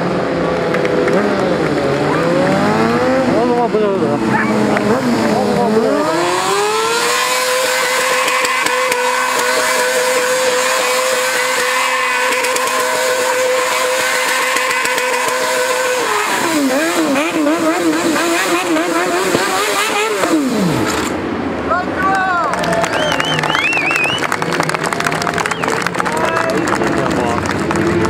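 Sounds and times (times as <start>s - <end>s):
motorcycle engine revving: 0.0s - 21.4s
rear tyre spinning: 0.6s - 21.2s.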